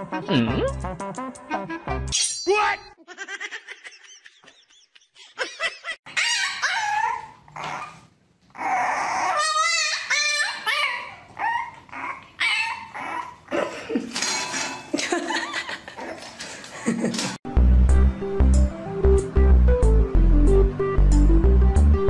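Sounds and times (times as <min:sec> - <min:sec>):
dog crying: 0:06.1 - 0:13.7.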